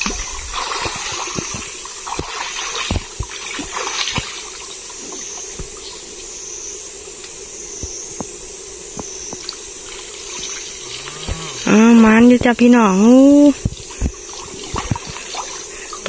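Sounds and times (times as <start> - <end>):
small splashes and drips: 0.0 - 6.1, 13.5 - 16.0
stream water sloshing around legs: 0.0 - 6.6, 9.3 - 16.0.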